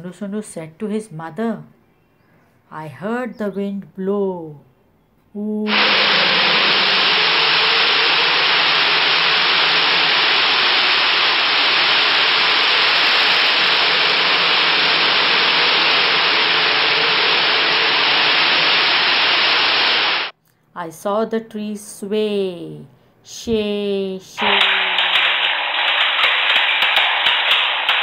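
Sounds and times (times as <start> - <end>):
loud wind blowing: 5.7 - 20.3.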